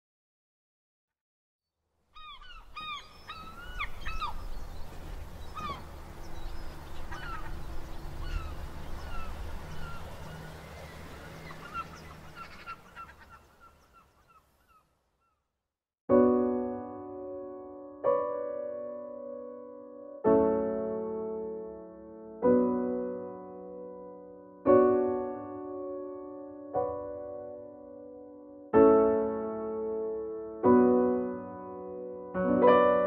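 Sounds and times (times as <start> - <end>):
gulls calling: 2.2 - 14.8
piano chord: 16.1 - 33.0.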